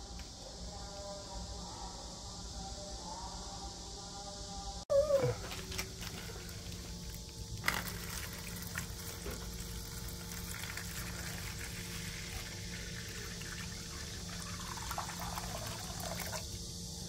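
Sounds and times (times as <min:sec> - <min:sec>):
water pouring into plastic tray: 0:07.6 - 0:16.5.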